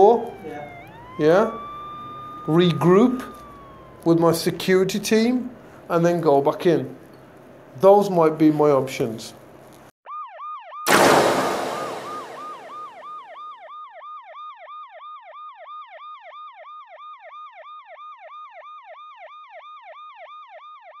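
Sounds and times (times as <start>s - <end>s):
siren yelping: 0.0s - 4.7s, 10.1s - 21.0s
loud bang: 10.9s - 13.1s.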